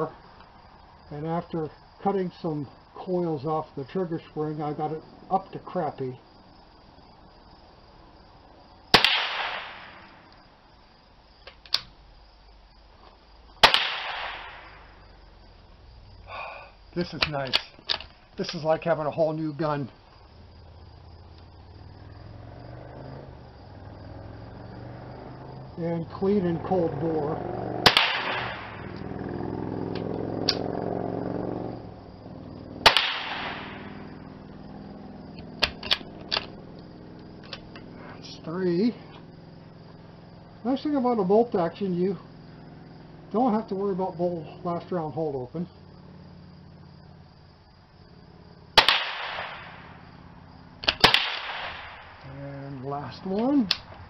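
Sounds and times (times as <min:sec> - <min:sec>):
rifle shots with echo: 0:08.9 - 0:10.0, 0:13.6 - 0:14.7, 0:27.8 - 0:28.9, 0:32.8 - 0:34.0, 0:48.8 - 0:49.8, 0:50.9 - 0:52.2
rifle bolt clicks: 0:17.2 - 0:18.6, 0:35.6 - 0:36.5.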